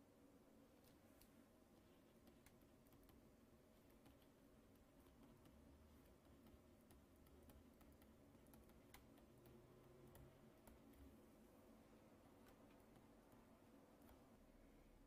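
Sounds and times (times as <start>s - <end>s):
faint low hum: 0.0s - 15.0s
stylus tapping on a tablet: 2.2s - 11.2s.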